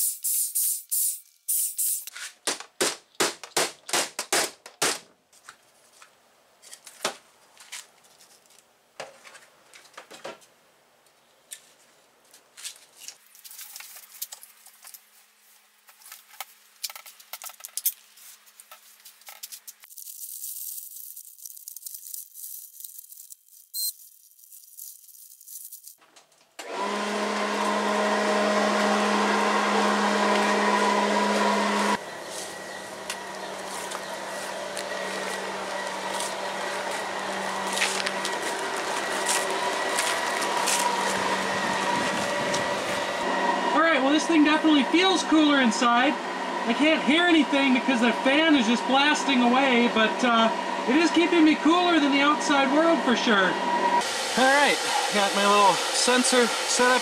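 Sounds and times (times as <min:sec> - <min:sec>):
turbo blower running: 0:26.6 - 0:57.0.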